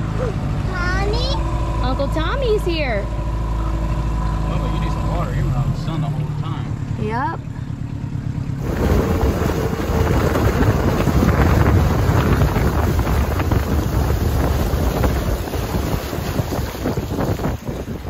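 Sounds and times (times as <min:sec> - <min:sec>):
water washing: 0:08.6 - 0:18.0
wind buffeting microphone: 0:08.6 - 0:18.0.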